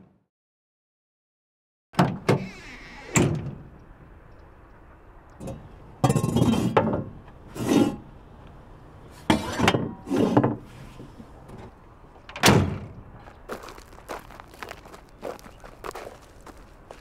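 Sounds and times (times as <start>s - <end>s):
shovel scraping in truck bed: 7.5s - 8.1s, 9.1s - 11.3s.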